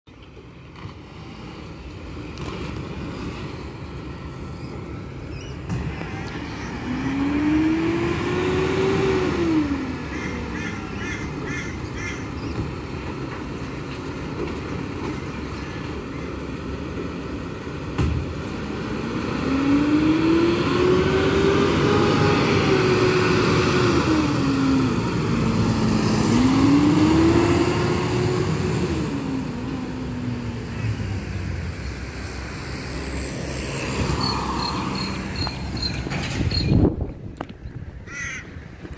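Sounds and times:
garbage truck diesel engine revving: 5.8s - 10.7s, 18.2s - 36.0s.

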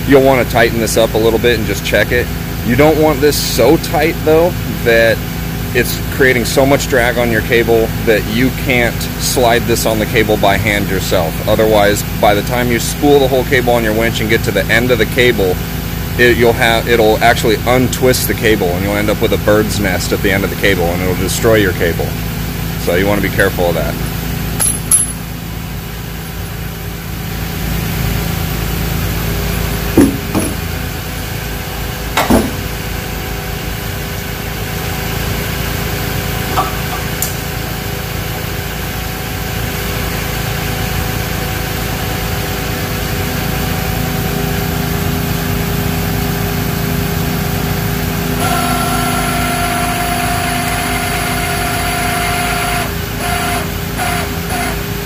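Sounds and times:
truck engine idling: 23.7s - 40.4s
metallic chain clinks: 24.6s - 25.2s
winch whine: 48.2s - 55.0s.

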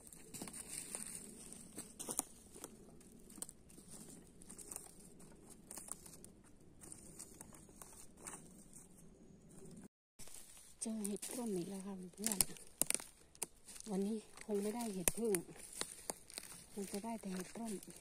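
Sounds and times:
footsteps on forest floor: 0.0s - 9.0s, 10.2s - 18.0s
twig snapping: 11.0s - 17.9s.

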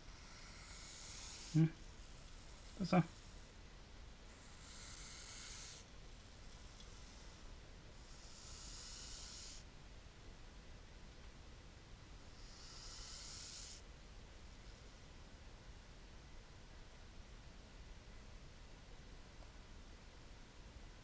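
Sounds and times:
snake hissing: 0.0s - 3.6s, 4.3s - 9.7s, 12.4s - 13.8s.

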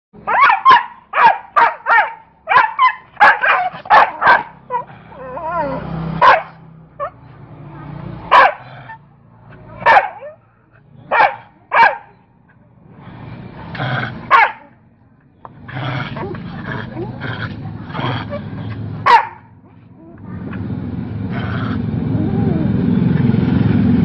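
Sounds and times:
dog barking: 0.2s - 4.9s, 6.2s - 7.2s, 8.3s - 9.0s, 9.8s - 10.4s, 11.1s - 12.2s, 14.3s - 14.8s, 19.0s - 19.6s
dog snarling: 13.0s - 14.6s, 15.6s - 19.1s, 21.3s - 22.6s.

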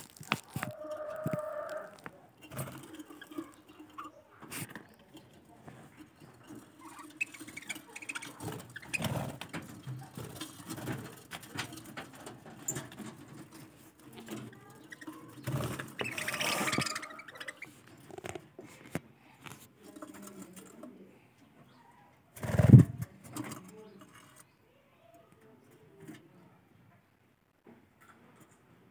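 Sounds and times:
scratchy rustle: 0.0s - 18.9s.

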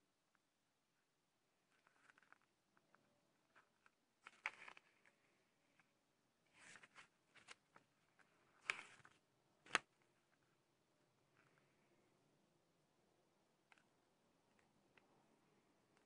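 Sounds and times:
paper pages rustling: 1.7s - 5.3s, 6.5s - 10.4s
page snapping: 8.6s - 9.9s.

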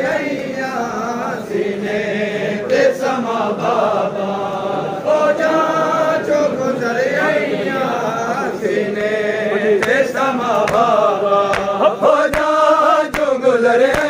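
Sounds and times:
men chanting a lament: 0.0s - 14.0s
chest-beating slaps: 9.8s - 13.3s.

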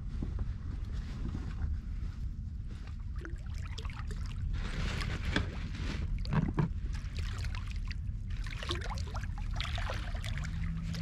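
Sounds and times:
steady low rumble: 0.0s - 11.0s
water lapping against boat hull: 2.8s - 11.0s.

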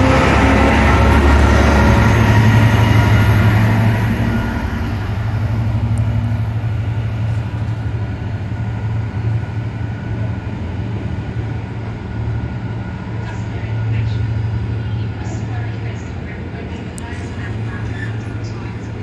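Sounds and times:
diesel locomotive engine drone: 0.0s - 19.0s
freight wagons rumbling: 0.0s - 19.0s.

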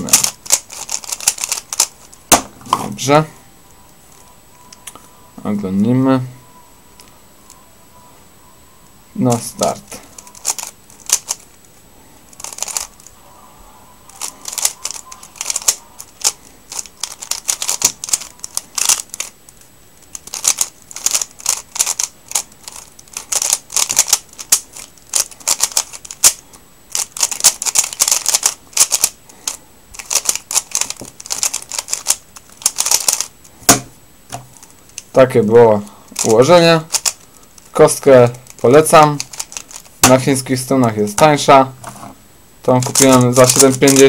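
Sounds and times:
plastic puzzle cube clicking: 0.0s - 2.2s, 10.1s - 11.4s, 12.4s - 13.1s, 14.1s - 33.8s, 36.2s - 40.3s, 42.7s - 44.0s.

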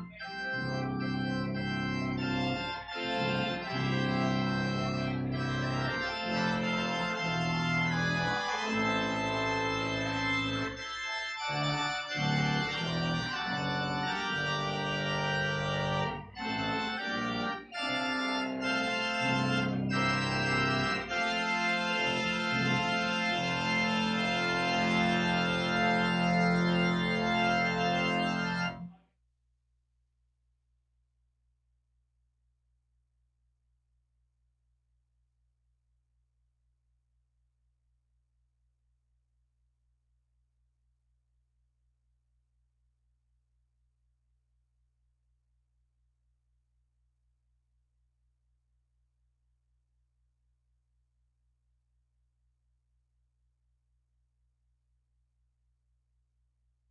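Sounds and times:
organ chords: 0.0s - 28.9s.

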